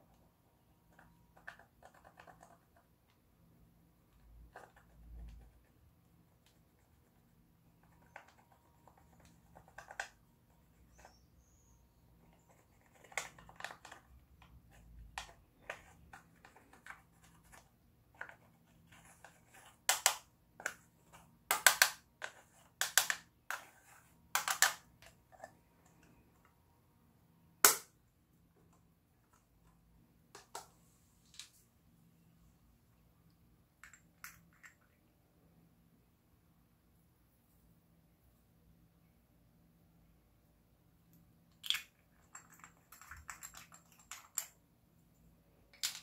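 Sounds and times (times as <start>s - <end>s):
plastic spoon scraping eyeshadow: 7.8s - 19.9s.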